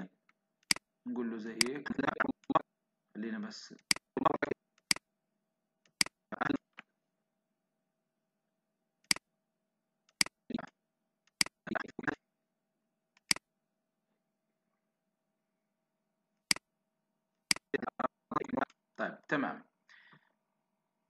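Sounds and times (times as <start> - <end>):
computer mouse clicking: 0.6 - 0.8, 1.6 - 2.6, 3.8 - 5.0, 5.9 - 6.8, 10.1 - 10.7, 11.3 - 12.2, 13.2 - 13.4, 17.5 - 18.8.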